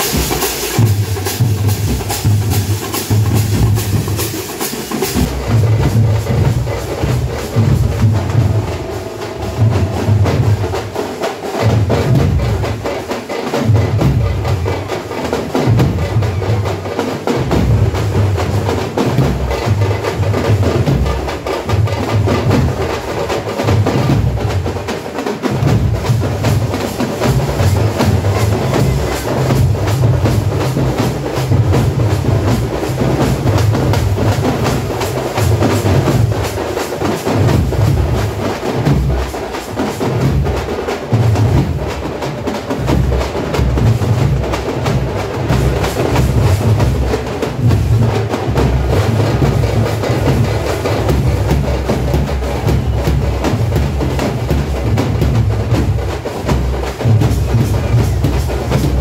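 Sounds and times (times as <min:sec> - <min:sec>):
deep drum beat: 0:00.0 - 0:59.0
frame drums beaten with sticks: 0:00.0 - 0:59.0.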